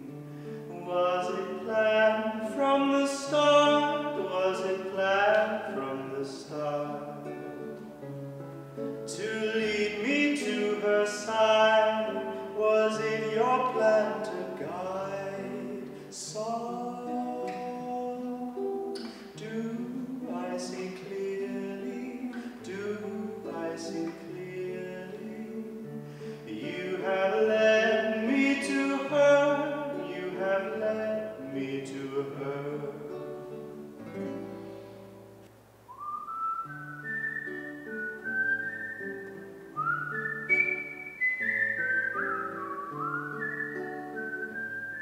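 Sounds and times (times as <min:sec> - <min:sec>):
man singing: 0:00.0 - 0:07.8, 0:09.0 - 0:33.4
plucked acoustic guitar: 0:00.0 - 0:45.0.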